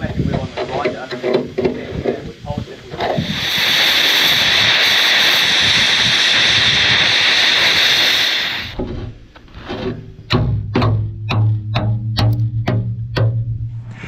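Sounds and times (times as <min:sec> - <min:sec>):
music with plucked notes: 0:10.2 - 0:13.8.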